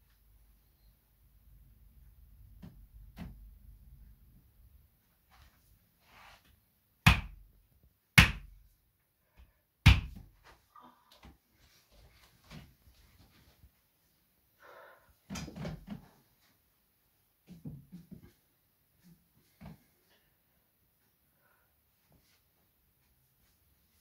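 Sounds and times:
hand striking a back: 7.1s - 7.4s, 8.2s - 8.6s, 9.9s - 10.2s.

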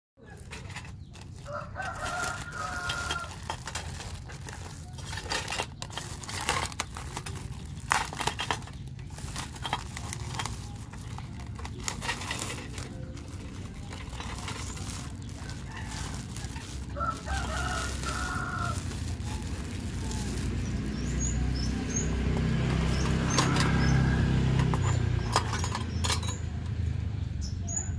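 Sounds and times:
plastic wrap crinkling: 0.2s - 25.2s
rooster crowing: 1.4s - 3.4s, 15.3s - 19.4s, 22.9s - 24.7s.

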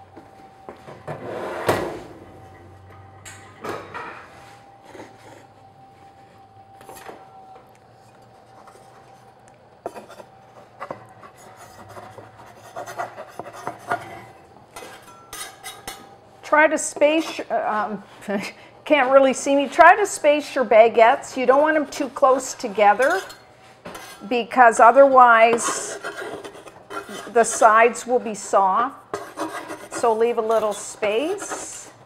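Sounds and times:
faint steady tone: 2.0s - 11.6s
wood scraping on baking stone: 8.3s - 15.9s, 21.3s - 28.5s, 29.1s - 32.0s.

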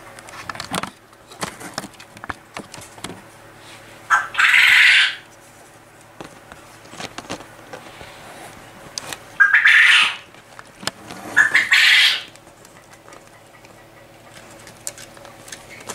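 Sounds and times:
paws tapping and scraping on concrete: 5.2s - 15.9s.

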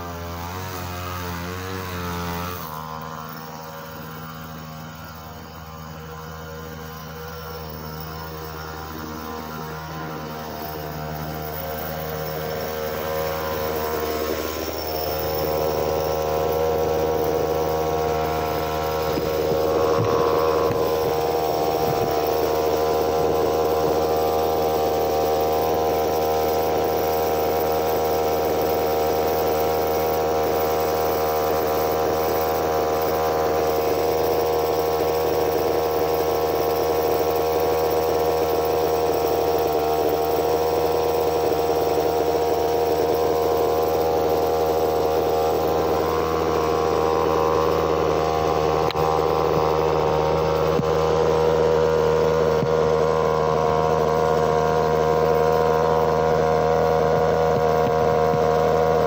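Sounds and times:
steady droning hum: 2.2s - 34.0s.

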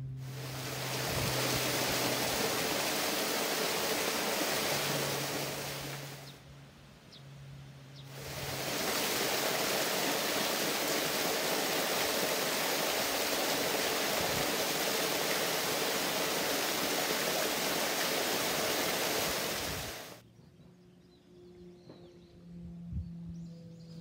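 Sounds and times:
water rushing onto rocks: 0.2s - 6.3s, 8.1s - 20.2s.

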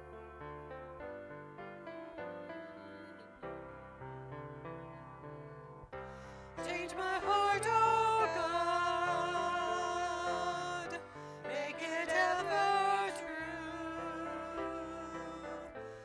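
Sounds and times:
piano accompaniment: 0.0s - 16.0s
group singing worship song: 6.3s - 16.0s.

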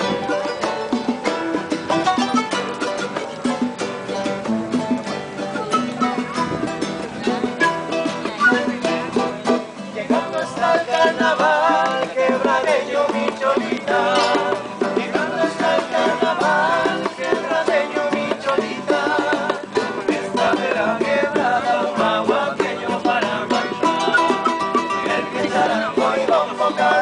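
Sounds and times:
plucked strings and harp: 0.0s - 12.5s, 23.0s - 26.9s
hand drum strikes: 0.0s - 26.6s.

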